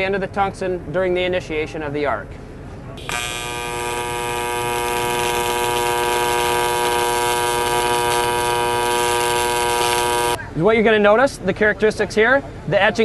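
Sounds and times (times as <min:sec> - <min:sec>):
welding arc buzzing: 0:03.0 - 0:10.4.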